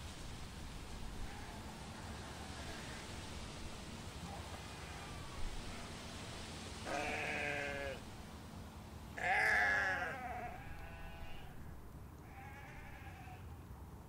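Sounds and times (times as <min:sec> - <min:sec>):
steady background hiss: 0:00.0 - 0:14.0
sheep bleating: 0:06.8 - 0:08.0, 0:09.2 - 0:11.6, 0:12.2 - 0:13.4.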